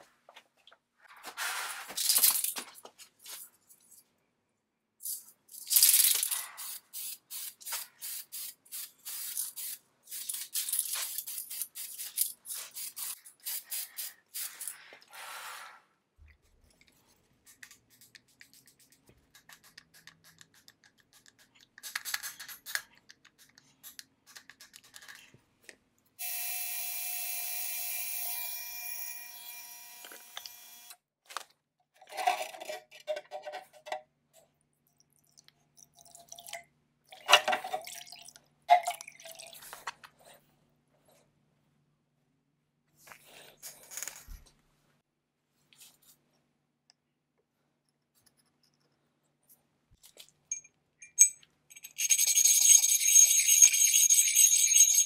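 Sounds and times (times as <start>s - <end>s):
buzzing hum with tones: 26.2s - 31.0s.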